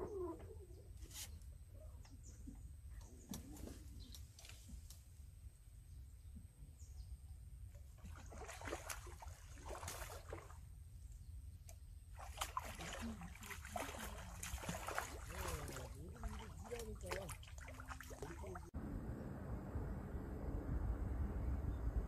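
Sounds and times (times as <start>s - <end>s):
fish splashing in water: 8.0s - 10.6s, 12.1s - 18.7s.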